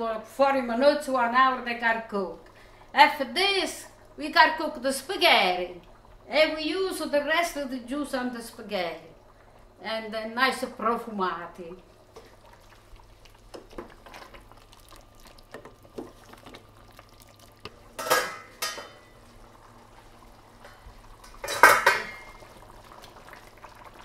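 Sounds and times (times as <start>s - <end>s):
glass lid clattering: 18.0s - 19.0s, 21.3s - 22.4s.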